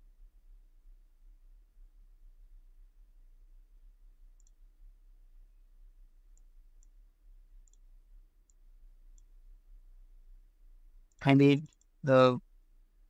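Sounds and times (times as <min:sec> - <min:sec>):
low steady hum: 0:00.0 - 0:13.0
computer mouse clicks: 0:04.4 - 0:04.6, 0:06.3 - 0:07.0, 0:07.6 - 0:09.3.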